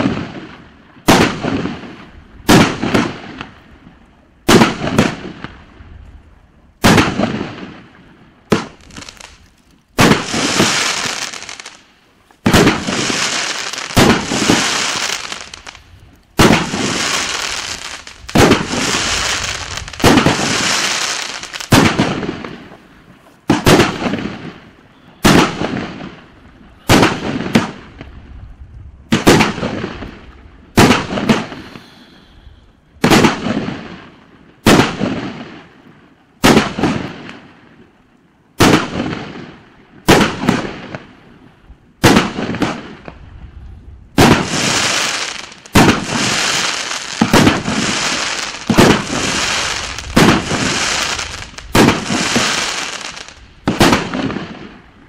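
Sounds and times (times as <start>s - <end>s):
fireworks reports: 10.0s - 28.2s, 29.1s - 33.9s, 42.0s - 55.0s.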